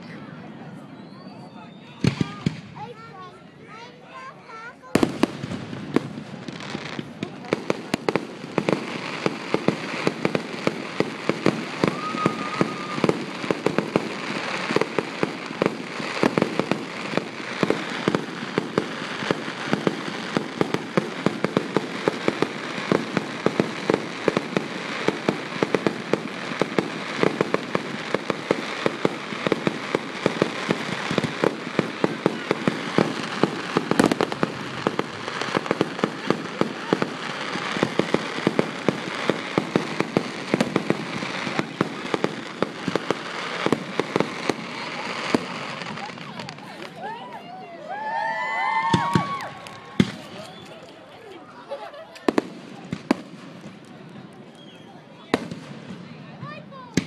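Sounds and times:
high firework whistle: 0.6s - 2.6s, 11.6s - 13.4s, 48.4s - 50.8s
fireworks pops and crackles: 1.8s - 3.1s, 3.7s - 57.0s.

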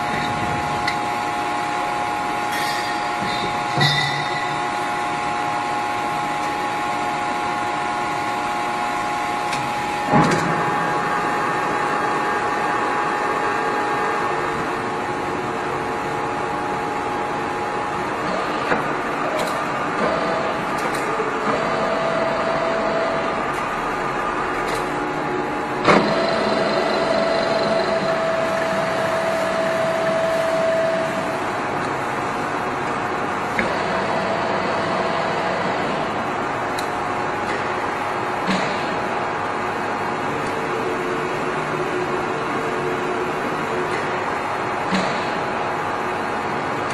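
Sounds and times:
lathe whirring with whine: 0.0s - 46.9s
lathe whine: 25.2s - 31.7s.

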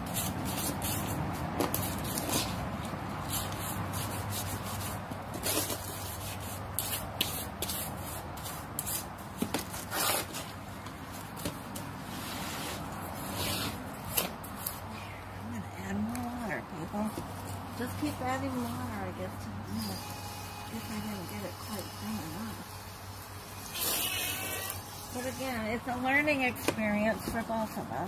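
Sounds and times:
rubbing and scraping: 0.0s - 14.9s.

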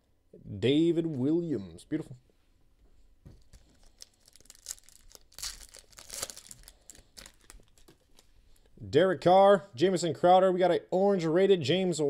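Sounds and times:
foil wrapper tearing and crinkling: 3.5s - 8.3s.

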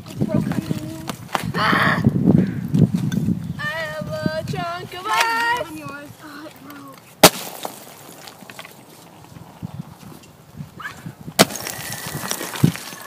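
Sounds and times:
ice slab shattering crack: 7.2s - 8.4s, 11.4s - 13.0s
ice cracking and knocking: 7.2s - 8.8s, 11.4s - 13.0s.

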